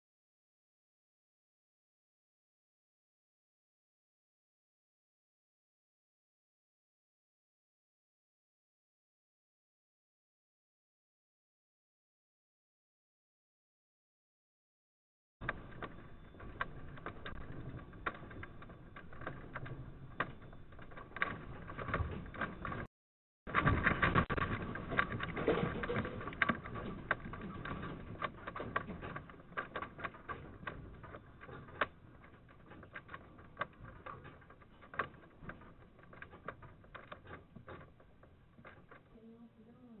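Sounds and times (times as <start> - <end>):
metal carts and objects rattling: 15.4 - 22.9, 23.5 - 40.0.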